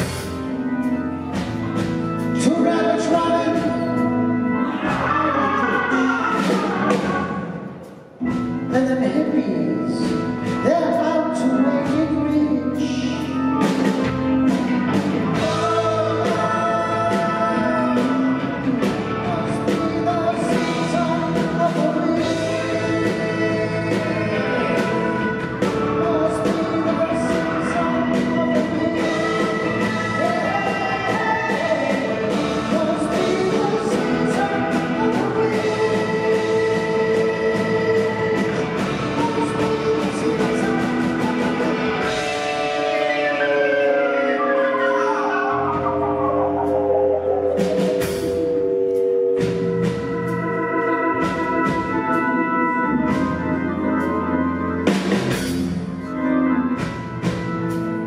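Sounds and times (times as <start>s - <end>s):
live rock band playing: 0.0s - 58.0s
person singing: 2.2s - 58.0s.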